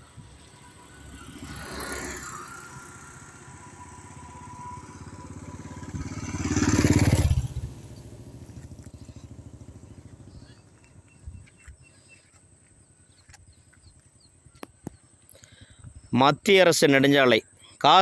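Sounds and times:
motorcycle passing by: 0:00.0 - 0:14.0
passing traffic: 0:00.0 - 0:18.0.

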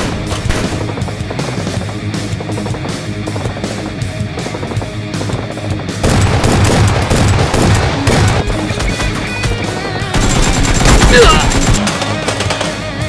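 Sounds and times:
machine-gun fire: 0:00.0 - 0:01.4, 0:06.0 - 0:09.2, 0:10.1 - 0:12.6
loud action music: 0:00.0 - 0:13.0.

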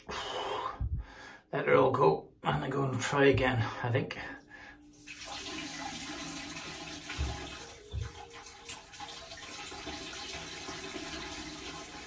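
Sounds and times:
dull low thumps: 0:00.8 - 0:01.2
running water: 0:04.8 - 0:12.0.

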